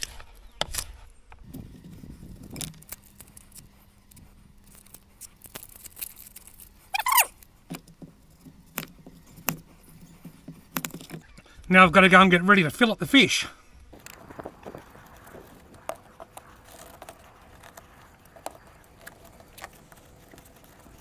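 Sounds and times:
short falling squeal: 6.9s - 7.3s.

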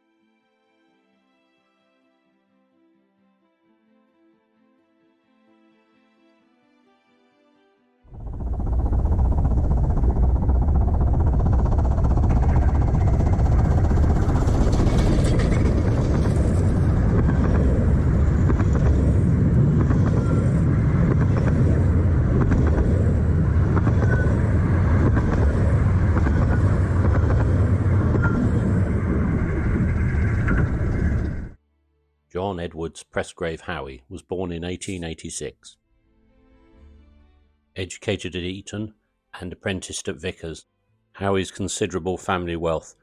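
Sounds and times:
train carriages rumbling past: 8.1s - 31.6s.

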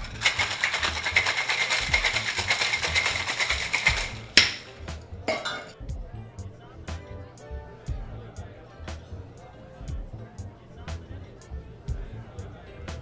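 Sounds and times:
ice rattling in cocktail shaker: 0.0s - 5.7s
background music with low beat: 0.0s - 13.0s.

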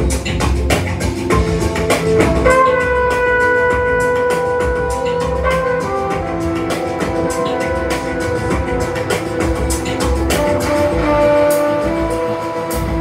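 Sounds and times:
music with drum beat: 0.0s - 13.0s
long held instrumental note: 2.0s - 13.0s.

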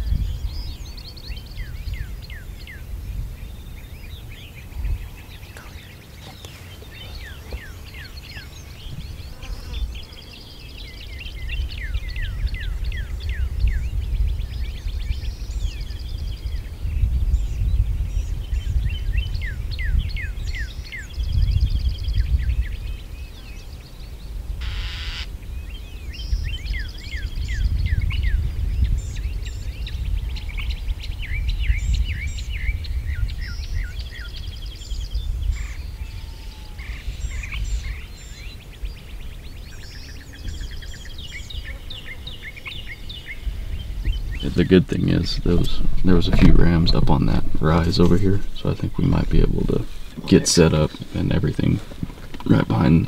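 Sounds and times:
birds singing and chirping: 0.0s - 53.0s
low rumble: 43.8s - 51.5s.

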